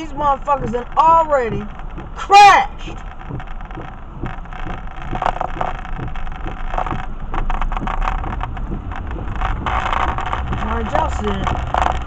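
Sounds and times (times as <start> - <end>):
car engine and tyre rumble: 0.0 - 12.0
light taps and clicks: 0.0 - 12.0.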